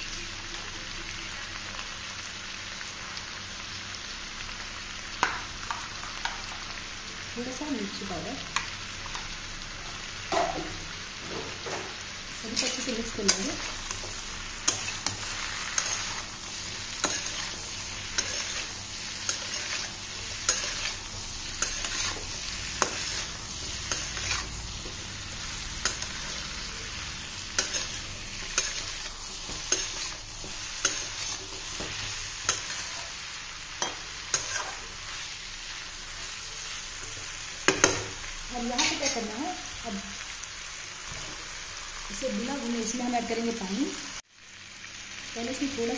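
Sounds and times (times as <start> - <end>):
vegetables sizzling: 0.0 - 45.9
spatula scraping metal pan: 17.0 - 21.0.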